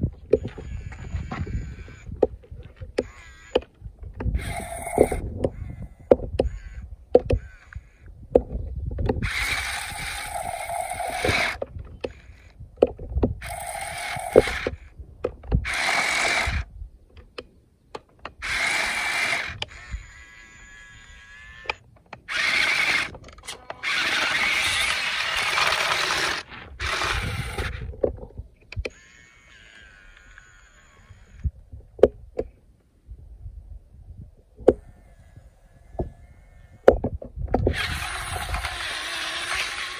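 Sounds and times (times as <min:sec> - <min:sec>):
toy truck motor whirring: 0:00.4 - 0:02.2, 0:03.0 - 0:03.7, 0:04.3 - 0:08.0, 0:09.2 - 0:12.6, 0:13.4 - 0:14.9, 0:15.6 - 0:16.7, 0:18.4 - 0:27.9, 0:28.8 - 0:31.5, 0:34.8 - 0:37.0, 0:37.6 - 0:39.9.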